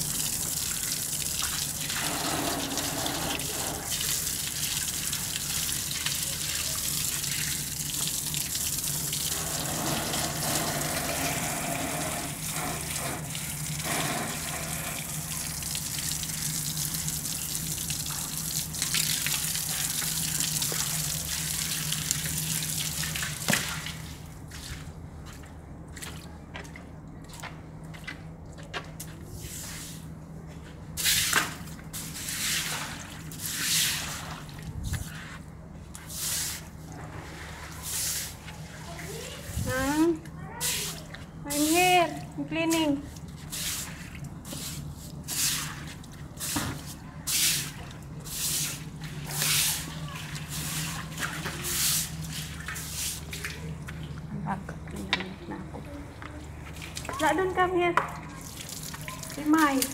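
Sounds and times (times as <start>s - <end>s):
garden hose spraying water on tiles: 0.0s - 24.9s, 29.4s - 30.1s, 31.0s - 55.2s, 56.6s - 59.9s
push broom swishing on wet tiles: 29.0s - 30.1s, 31.0s - 42.0s, 42.6s - 53.7s.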